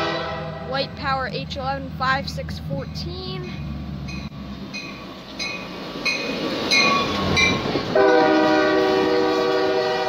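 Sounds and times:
locomotive horn: 0.0s - 0.8s, 7.9s - 10.0s
locomotive engine and wheel rumble: 0.0s - 10.0s.

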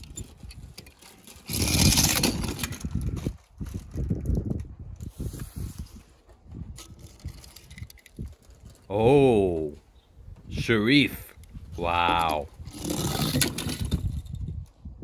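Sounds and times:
toy car wheels rattling: 0.0s - 4.7s, 6.8s - 8.9s, 12.1s - 14.5s.

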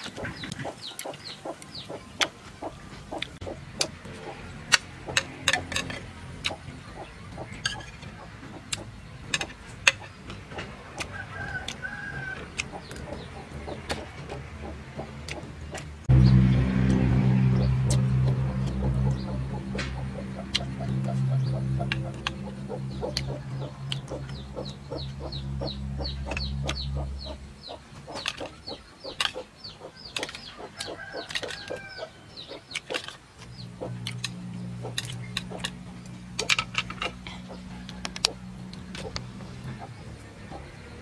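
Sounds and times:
chickens clucking: 0.0s - 16.0s, 17.5s - 41.0s
low steady hum: 3.2s - 29.3s
bird chirping descending notes: 12.7s - 30.8s.

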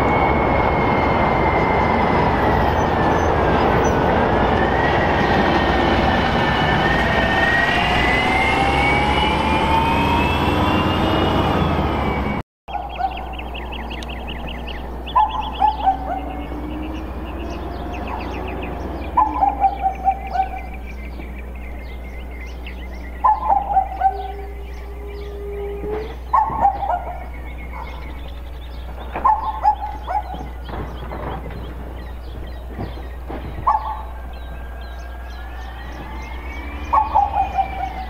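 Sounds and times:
bird song descending phrase: 0.0s - 38.0s
garbage truck engine rumble: 0.0s - 38.0s
small bird chirps: 12.7s - 38.0s.

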